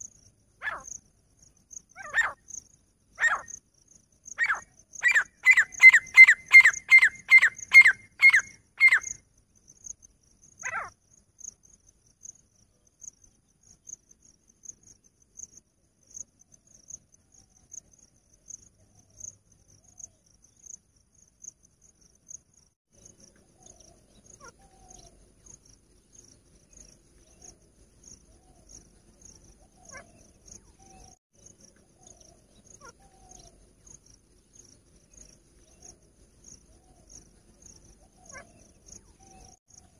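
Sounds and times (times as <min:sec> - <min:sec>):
francolin calling: 0:00.0 - 0:01.0, 0:01.8 - 0:03.6, 0:04.3 - 0:09.2, 0:10.6 - 0:11.0, 0:26.7 - 0:31.2, 0:31.9 - 0:34.0, 0:35.1 - 0:39.9
cricket chirping: 0:00.0 - 0:39.9.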